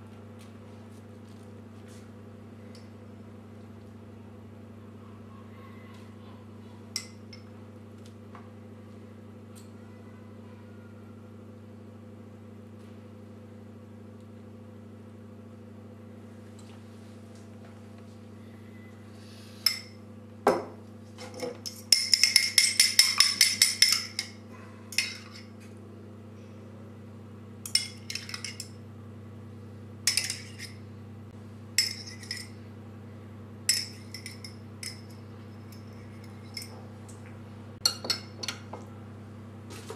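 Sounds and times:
steady low hum: 0:00.0 - 0:39.9
fork beating egg in bowl: 0:21.2 - 0:25.5
fork tapping bowl rim: 0:21.6 - 0:25.4.

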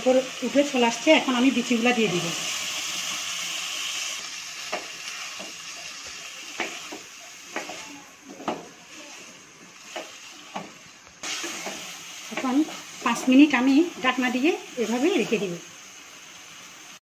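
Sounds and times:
oil sizzling in pot: 0:00.0 - 0:17.0.

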